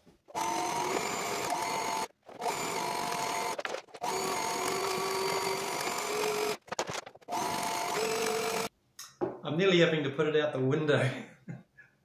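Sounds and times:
sewing machine running: 0.3 - 8.7.

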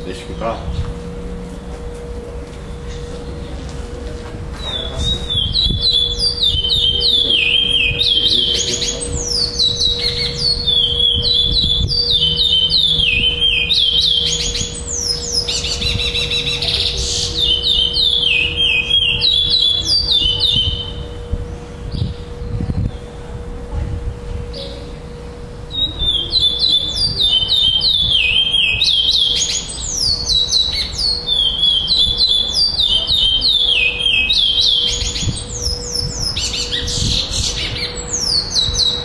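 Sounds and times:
finch singing whistled notes: 4.6 - 21.1, 25.7 - 39.0.

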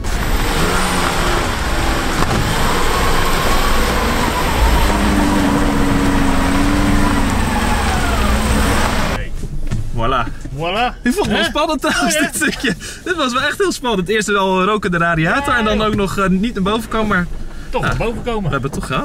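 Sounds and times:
engine revving under load: 0.0 - 9.2
loud steady rushing noise: 0.0 - 9.2.

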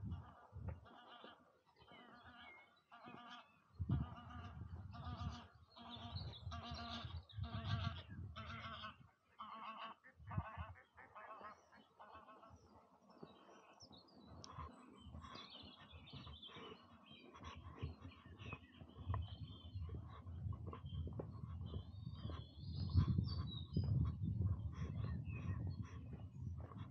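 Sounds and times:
geese honking: 0.0 - 13.8, 14.4 - 19.2
songbirds chirping: 0.0 - 26.9.

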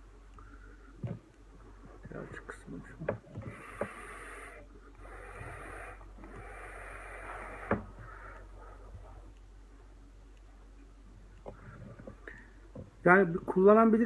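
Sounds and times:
vapour hissing through atomizer: 3.4 - 8.0.

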